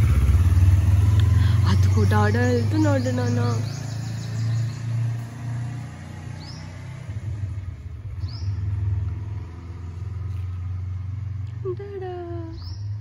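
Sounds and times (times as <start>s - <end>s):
motorcycle engine rumble: 0.0s - 13.0s
bird chirps: 0.6s - 5.7s, 6.3s - 7.0s, 8.2s - 8.8s, 12.3s - 13.0s.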